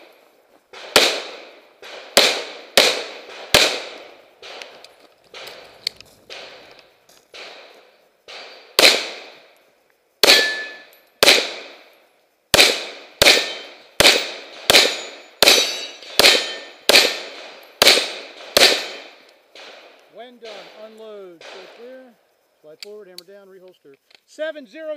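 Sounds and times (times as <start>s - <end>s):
pistol shots: 0.7s - 5.7s, 6.3s - 9.4s, 10.2s - 11.8s, 12.5s - 20.8s, 21.4s - 21.9s
steel targets ringing: 10.3s - 11.0s, 14.9s - 17.1s, 18.6s - 19.2s.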